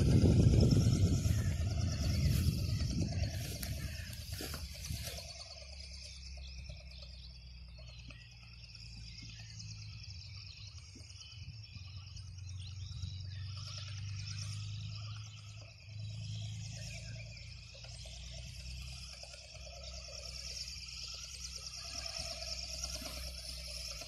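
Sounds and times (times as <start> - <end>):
wind rumbling on microphone: 0.0 - 5.5
insects chirring: 0.0 - 24.0.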